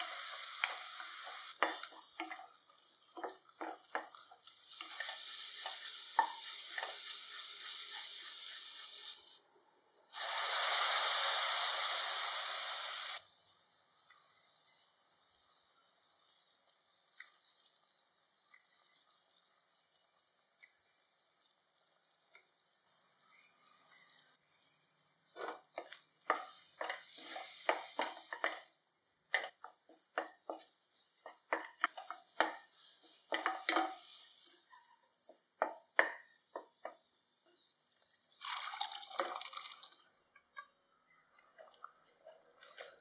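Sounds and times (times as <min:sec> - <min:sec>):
wooden spatula scraping a pan: 0:00.0 - 0:09.1, 0:25.3 - 0:28.7, 0:29.3 - 0:37.0
masala sizzling in a pan: 0:00.0 - 0:41.6.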